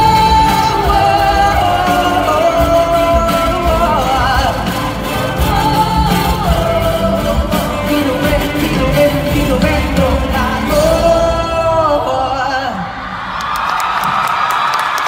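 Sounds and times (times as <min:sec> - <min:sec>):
band playing steady beat: 0:00.0 - 0:11.8
singer holding long notes: 0:00.0 - 0:13.5.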